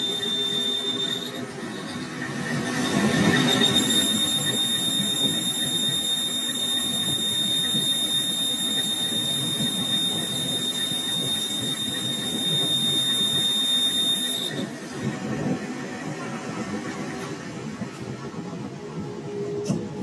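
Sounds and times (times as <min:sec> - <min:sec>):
boring bar squealing: 0:00.0 - 0:14.7.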